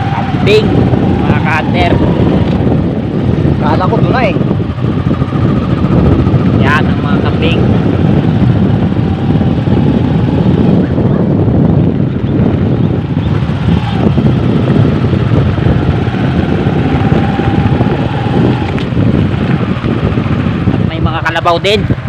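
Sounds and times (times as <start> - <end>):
motorcycle running: 0.0 - 22.0
wind rushing over microphone: 0.0 - 22.0.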